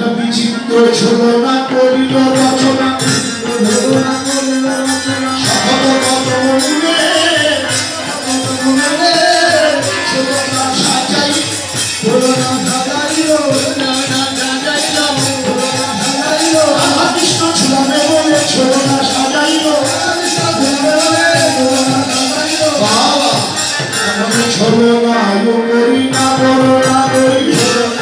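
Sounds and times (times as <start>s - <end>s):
hand drums fast rhythm: 0.1s - 25.2s, 26.0s - 28.0s
wavering melody: 2.1s - 28.0s.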